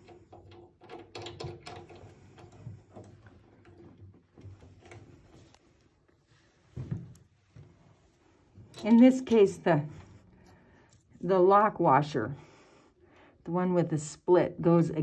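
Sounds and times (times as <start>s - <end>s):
metal clicks and rubbing: 0.0s - 5.9s.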